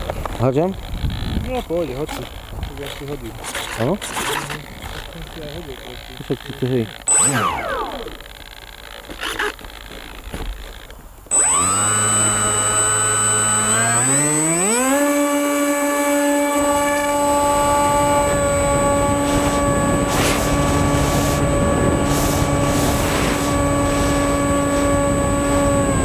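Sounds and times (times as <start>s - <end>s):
electric motor and propeller whine: 0.0s - 26.0s
rushing air: 17.4s - 25.6s.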